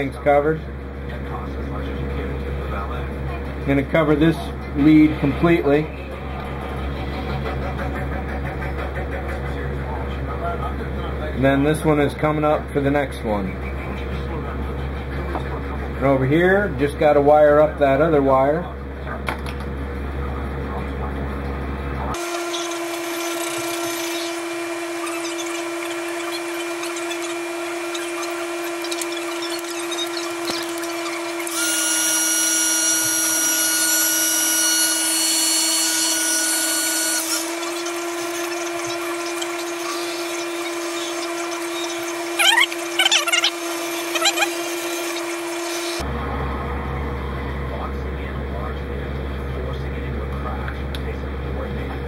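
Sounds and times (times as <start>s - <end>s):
electrical hum: 0.0s - 52.0s
soldering gun buzzing whine: 22.2s - 46.0s.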